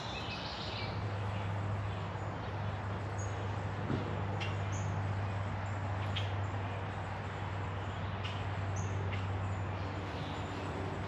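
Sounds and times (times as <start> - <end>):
birds chirping: 0.0 - 3.6.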